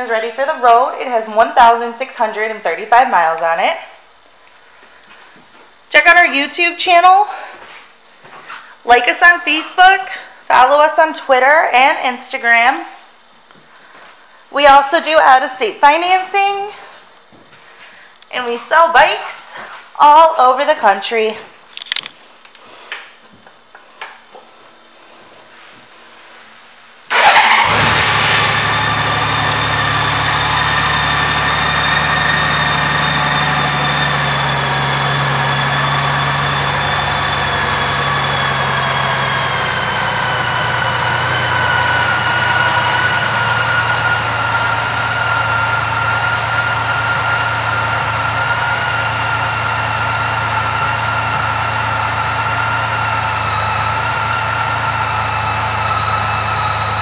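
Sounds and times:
motorcycle engine starting and idling: 0:27.1 - 0:57.0.

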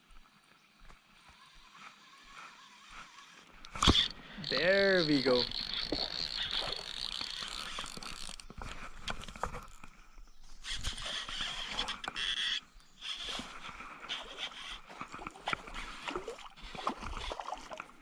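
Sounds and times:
fishing reel gears whirring: 0:01.2 - 0:18.0
small clicks and handling noise: 0:03.6 - 0:13.5.

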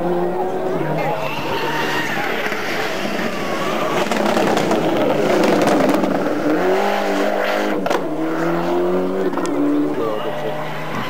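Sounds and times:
rally car engine revving: 0:00.0 - 0:11.0
engine crackles: 0:02.1 - 0:11.0.

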